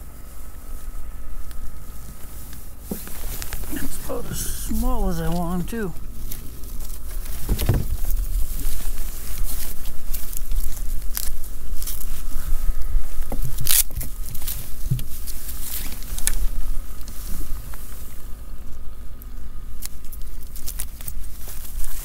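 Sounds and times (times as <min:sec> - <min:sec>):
mesh bag rustling: 0:02.2 - 0:12.3.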